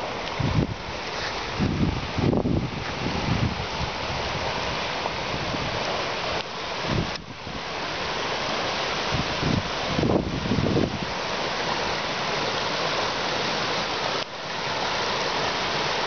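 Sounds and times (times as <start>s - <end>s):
creek rushing over rocks: 0.0s - 16.0s
wind buffeting microphone: 0.2s - 5.9s, 6.8s - 7.7s, 9.0s - 11.2s.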